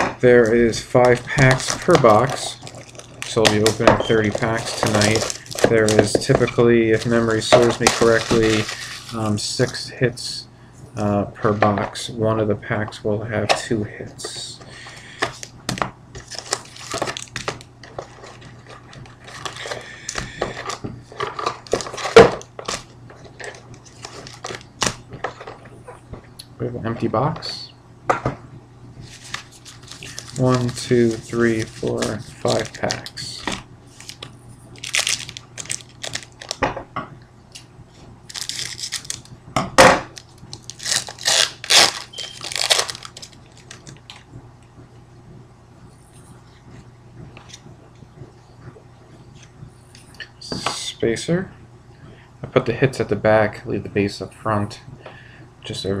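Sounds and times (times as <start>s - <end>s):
foil packs rustling and crinkling: 0.4s - 9.8s, 16.2s - 25.0s, 29.0s - 36.6s, 38.3s - 39.3s, 40.1s - 44.2s.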